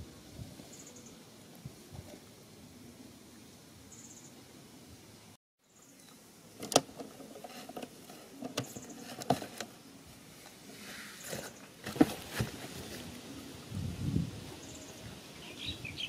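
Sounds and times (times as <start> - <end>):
cardboard box scraping and rustling: 7.0 - 9.8, 10.6 - 13.2.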